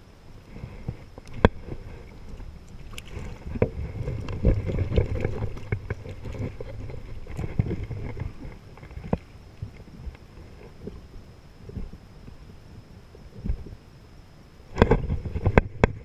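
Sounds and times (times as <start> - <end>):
water sloshing and splashing: 0.7 - 11.1.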